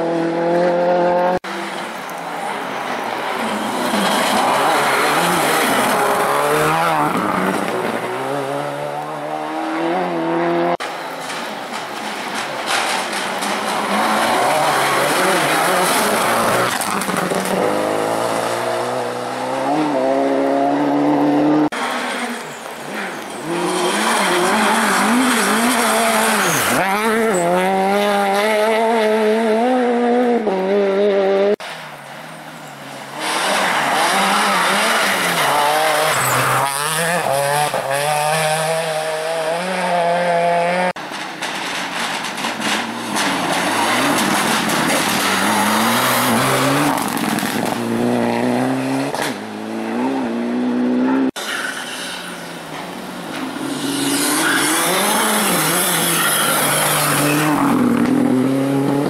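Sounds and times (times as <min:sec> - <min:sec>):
rally cars driving past: 0:12.2 - 0:41.0.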